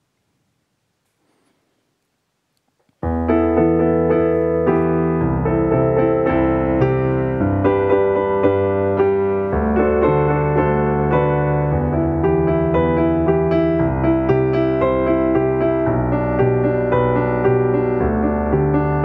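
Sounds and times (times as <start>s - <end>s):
bass notes: 3.0s - 19.0s
piano chords: 3.0s - 19.0s.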